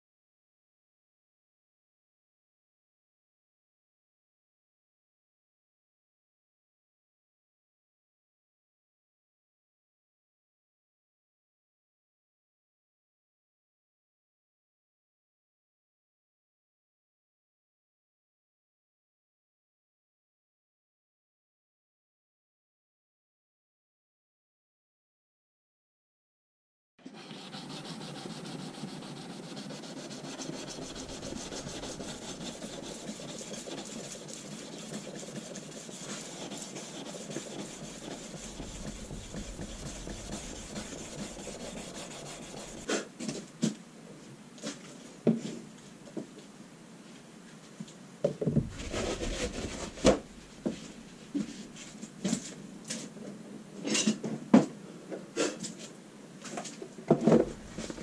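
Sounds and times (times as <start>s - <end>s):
sandpaper rubbing on metal blade: 27.1s - 42.9s.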